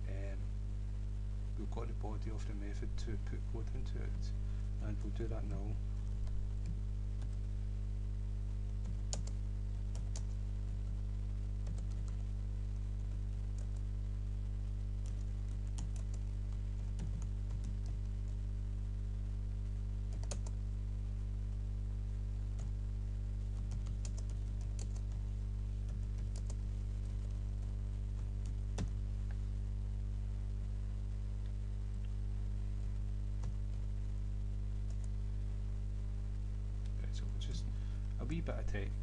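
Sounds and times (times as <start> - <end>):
low electrical hum: 0.0 - 39.0
computer keyboard typing: 8.8 - 10.8, 11.6 - 12.2, 15.0 - 18.4, 20.1 - 20.6, 23.6 - 25.2, 25.8 - 29.0.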